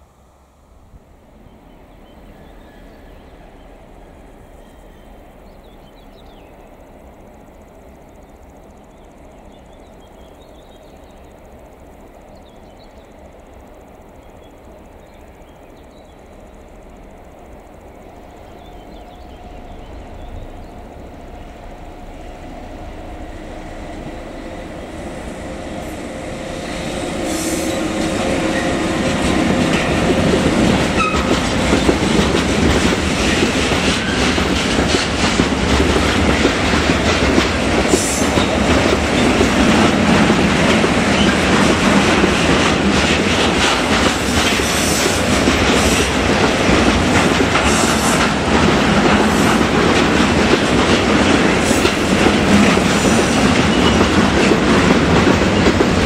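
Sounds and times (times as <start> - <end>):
freight train passing: 0.0 - 56.0
wheels on rails: 2.2 - 56.0.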